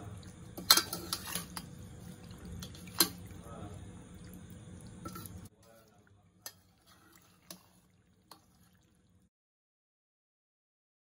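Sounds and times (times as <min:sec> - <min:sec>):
faint steady hum: 0:00.0 - 0:09.3
ladle stirring in pot: 0:00.0 - 0:09.3
ladle tapping metal pot: 0:00.6 - 0:01.7, 0:02.6 - 0:03.2, 0:05.0 - 0:05.4.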